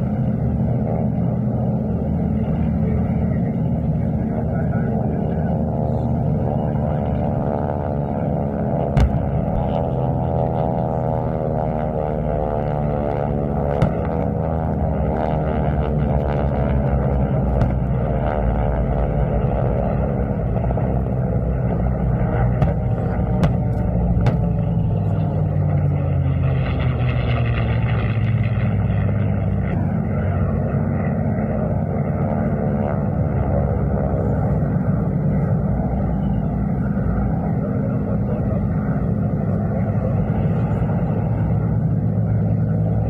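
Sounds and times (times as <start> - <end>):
propeller engine drone: 0.0 - 43.0
pyrotechnic explosions: 8.9 - 9.9, 13.7 - 14.4, 17.4 - 18.1, 22.4 - 25.1.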